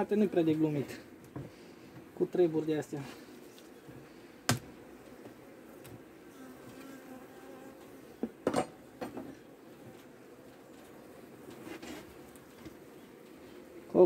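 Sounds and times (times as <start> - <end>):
honeybees humming: 0.0 - 14.0
hive tool knocking on wood: 4.5 - 6.0.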